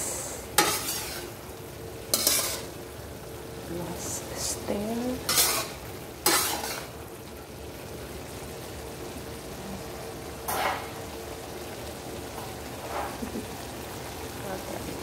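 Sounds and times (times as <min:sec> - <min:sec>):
food sizzling in a wok: 0:00.0 - 0:15.0
metal spatula scraping: 0:00.6 - 0:01.4, 0:02.1 - 0:02.8, 0:05.2 - 0:06.9.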